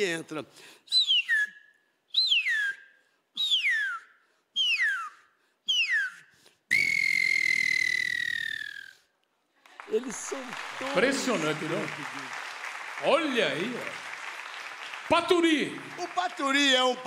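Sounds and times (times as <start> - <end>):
man whistling bird call: 0.9 - 9.1.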